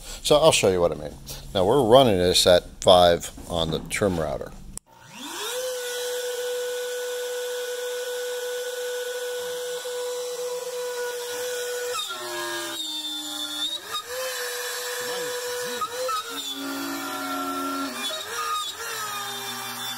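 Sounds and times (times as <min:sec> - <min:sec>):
router bit cutting wood: 0:04.9 - 0:19.9
router motor high whine: 0:04.9 - 0:19.9.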